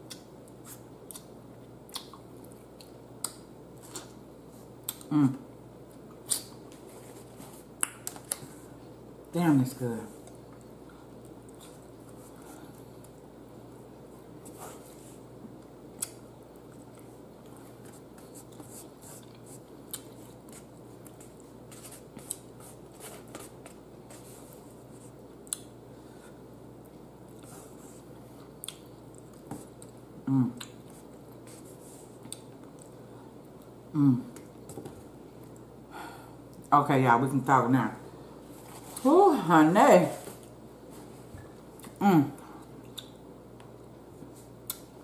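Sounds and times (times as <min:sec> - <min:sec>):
chewing and mouth noises: 0:01.9 - 0:04.2, 0:42.6 - 0:43.2
person humming: 0:33.9 - 0:34.3.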